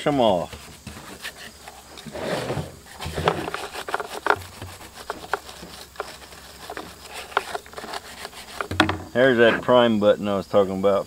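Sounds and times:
plastic housing clicks and knocks: 8.5 - 9.1.

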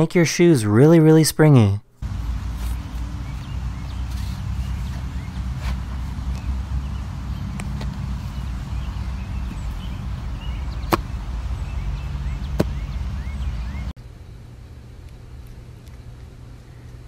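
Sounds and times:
small birds chirping: 2.0 - 14.0
steady low rumble: 2.0 - 17.0
shoe landing on artificial turf: 12.5 - 12.8.

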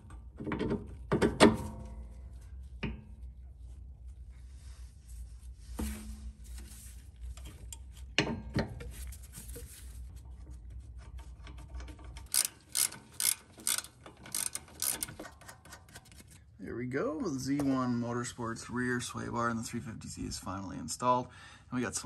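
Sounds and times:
ratchet wrench pawl clicking: 12.2 - 15.4.

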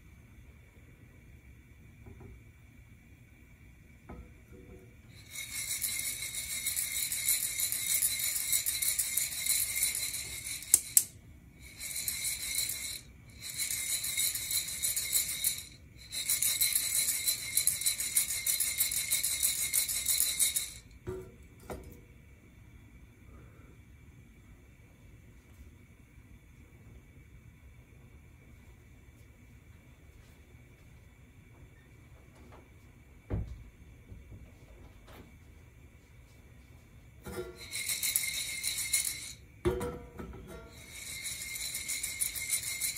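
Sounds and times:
coffee beans rattling in roaster: 5.0 - 21.0, 37.2 - 42.9.

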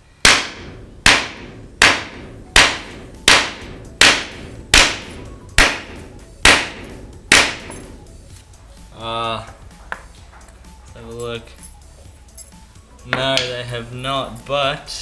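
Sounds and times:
hammer striking metal: 0.2 - 8.0.

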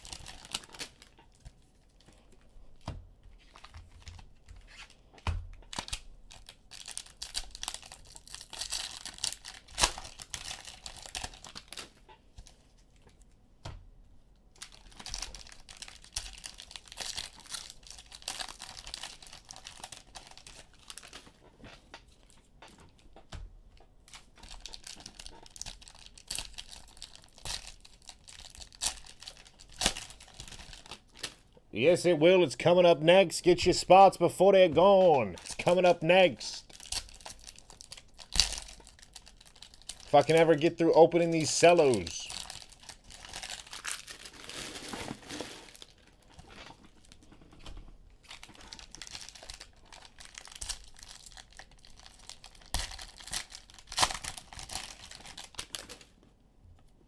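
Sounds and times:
cellophane wrappers tearing and crinkling: 0.0 - 1.5, 5.7 - 12.6, 14.6 - 21.4, 24.1 - 31.4, 35.2 - 47.2, 48.2 - 56.1.

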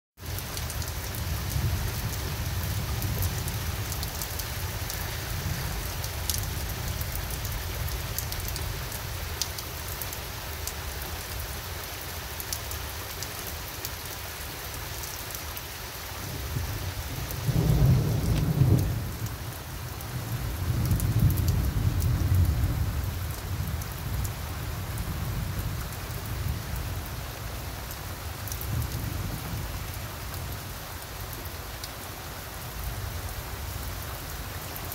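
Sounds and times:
steady rain falling: 0.2 - 34.9
thunder rumbling: 16.3 - 26.7.

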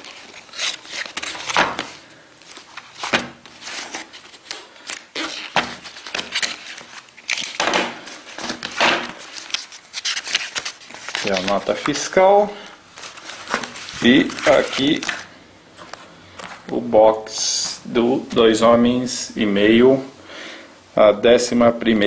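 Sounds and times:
cardboard flaps folded open: 0.0 - 12.1, 13.0 - 15.2.

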